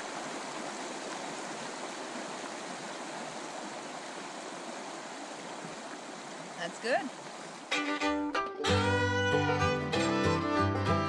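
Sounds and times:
shallow river rushing over stones: 0.0s - 7.7s.

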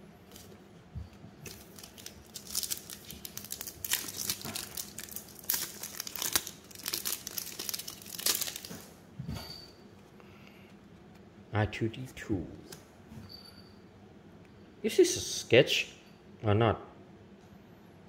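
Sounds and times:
foil wrapper crinkling: 1.4s - 9.0s.

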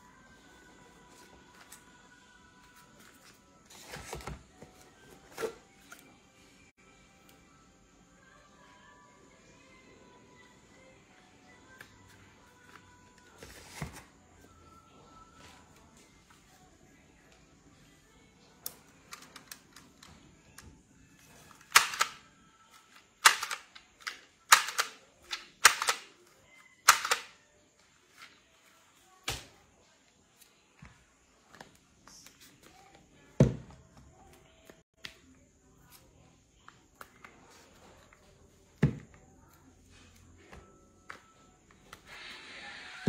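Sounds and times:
label gun clacking: 21.7s - 22.2s, 23.2s - 26.1s, 26.9s - 27.3s.

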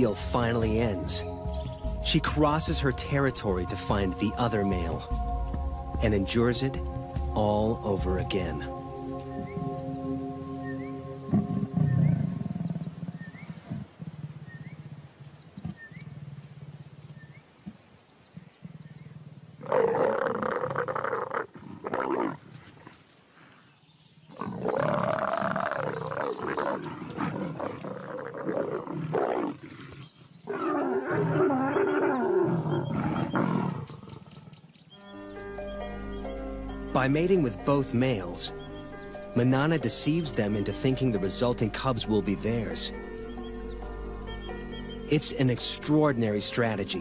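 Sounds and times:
leopards snarling and growling: 19.6s - 23.6s, 24.3s - 34.6s.

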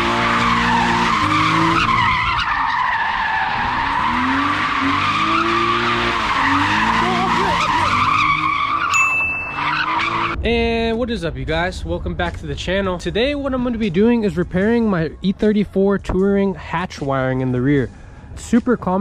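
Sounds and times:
car engine revving: 0.0s - 8.9s, 9.5s - 10.4s
tyres squealing: 0.1s - 10.4s
short high tone: 8.9s - 9.8s.

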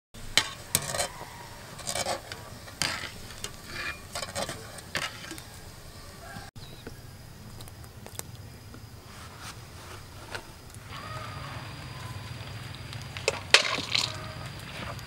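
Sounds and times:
strainer scraping against a pot: 0.4s - 5.4s, 13.5s - 14.4s.

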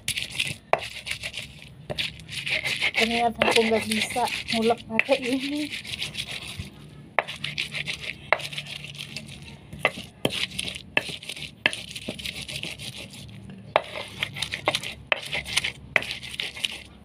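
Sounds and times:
stone scraping grind: 0.0s - 17.0s
stone knocking on stone: 9.7s - 12.2s.

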